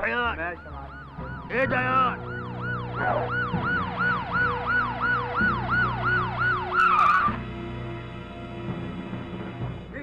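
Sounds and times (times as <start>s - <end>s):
police siren yelping: 0.0s - 7.4s.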